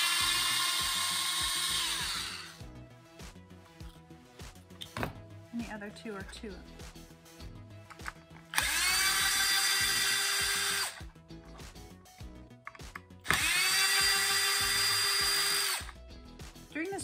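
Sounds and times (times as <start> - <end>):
power screwdriver whining: 0.0 - 2.6, 8.0 - 11.0, 13.2 - 16.0.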